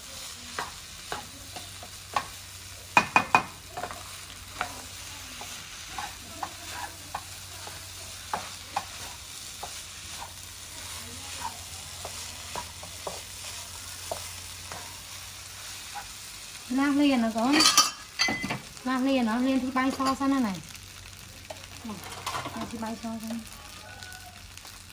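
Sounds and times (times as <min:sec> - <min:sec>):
rice sizzling in a frying pan: 0:00.0 - 0:24.9
spatula tapping on pan: 0:00.5 - 0:10.3, 0:11.4 - 0:15.0
wooden spatula scraping a pan: 0:03.7 - 0:16.2.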